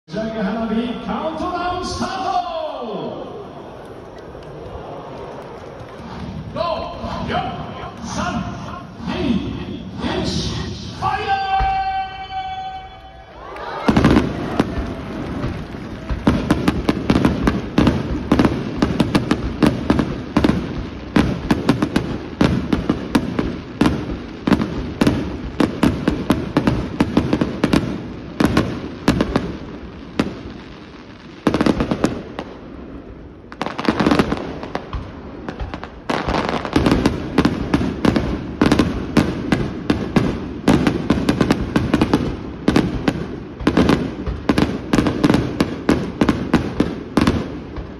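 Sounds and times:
firework shells bursting: 0:13.9 - 0:30.6.

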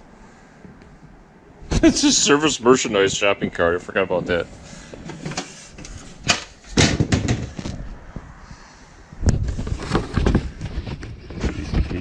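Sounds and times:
thumps: 0:05.0 - 0:08.3
knocks and bumps of cardboard boxes: 0:06.7 - 0:07.9, 0:09.4 - 0:12.0
rustling: 0:09.4 - 0:12.0.

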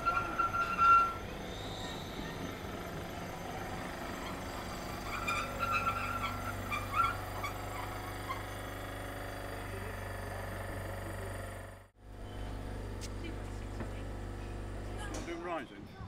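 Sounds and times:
high wheel squeals: 0:00.0 - 0:09.4
electric tram humming: 0:00.0 - 0:16.0.

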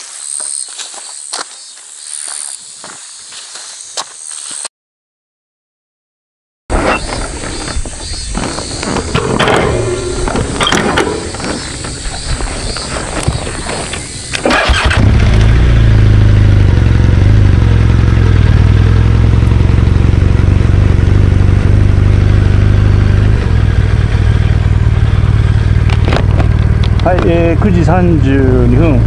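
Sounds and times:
motorcycle engine starting and idling: 0:06.7 - 0:29.0.

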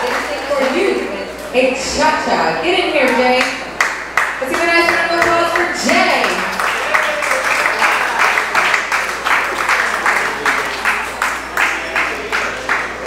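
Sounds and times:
rhythmic clapping: 0:03.0 - 0:13.0.

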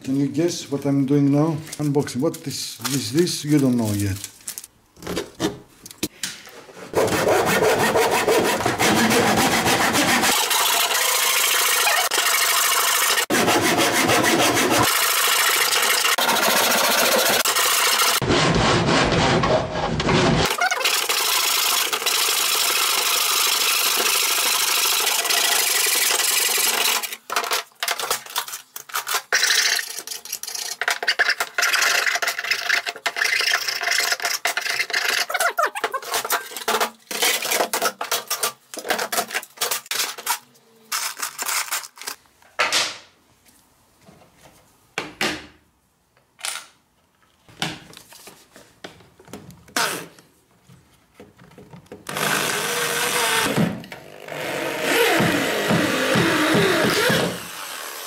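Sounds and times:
hand saw cutting wood: 0:06.9 - 0:20.7, 0:52.1 - 0:58.0.

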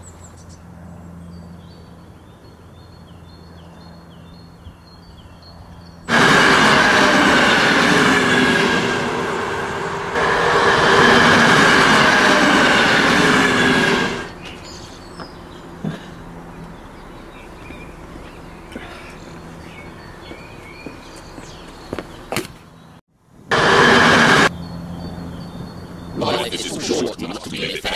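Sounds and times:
train passing with rushing rumble: 0:05.6 - 0:22.3, 0:23.4 - 0:27.0
low hum: 0:06.0 - 0:20.8, 0:23.5 - 0:27.9
bird chirping: 0:14.3 - 0:15.8, 0:16.4 - 0:23.0.

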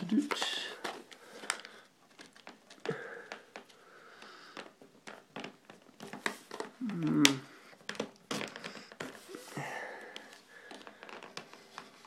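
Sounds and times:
plastic snapping: 0:00.0 - 0:09.2
plastic package clicking and crackling: 0:00.0 - 0:12.0.

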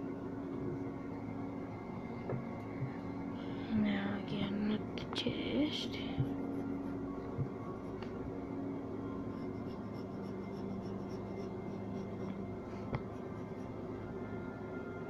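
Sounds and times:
steady low hum: 0:00.0 - 0:15.0
pencil scratching on paper: 0:09.3 - 0:13.7.

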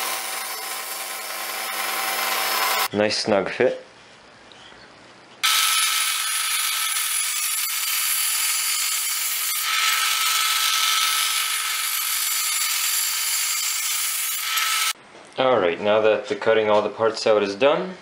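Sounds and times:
table saw cutting wood: 0:00.0 - 0:02.9, 0:05.4 - 0:15.0.

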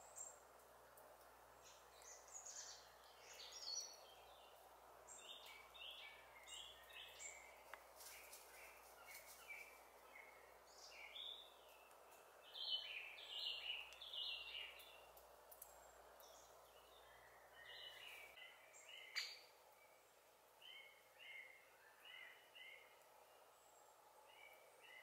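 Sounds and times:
faint birdsong: 0:00.0 - 0:25.0.

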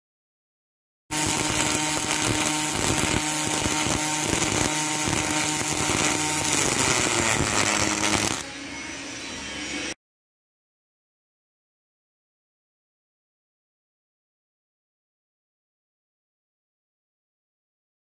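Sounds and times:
welding arc hiss and crackle: 0:01.1 - 0:08.4.

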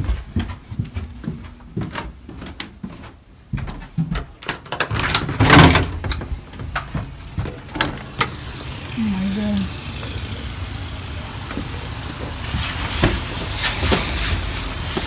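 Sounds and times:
door lock and handle clicking: 0:04.1 - 0:06.2
door opening rush: 0:04.1 - 0:15.0.

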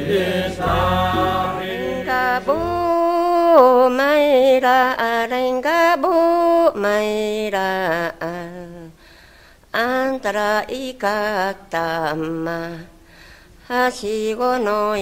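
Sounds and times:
person singing long held notes: 0:00.0 - 0:03.9.

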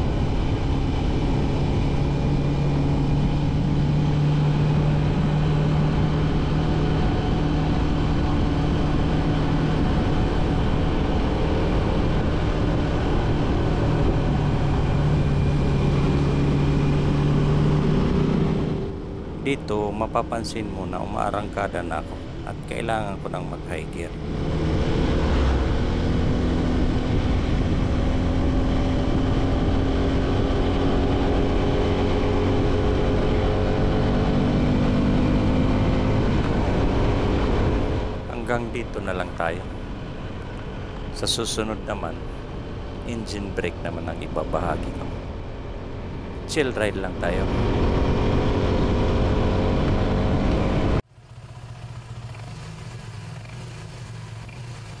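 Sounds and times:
wind rumble on microphone: 0:00.0 - 0:19.5
motorcycle engine cruising: 0:00.0 - 0:55.0
wind and road rush: 0:00.0 - 0:55.0
motorcycle engine running: 0:47.6 - 0:55.0.

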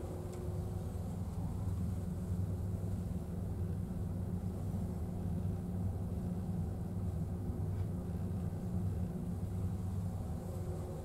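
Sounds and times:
faint steady hum: 0:00.0 - 0:11.0
ship engines droning: 0:00.0 - 0:11.0.

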